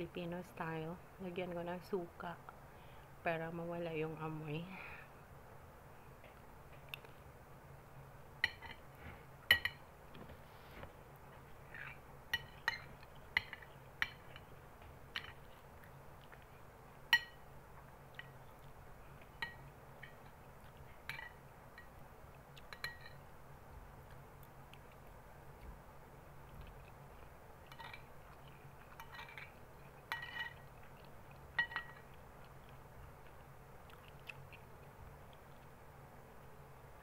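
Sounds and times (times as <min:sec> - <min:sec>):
metal spoon clinking glass bowl: 0:09.5 - 0:09.8, 0:17.1 - 0:17.4, 0:22.7 - 0:23.2, 0:30.1 - 0:30.6, 0:31.6 - 0:32.1.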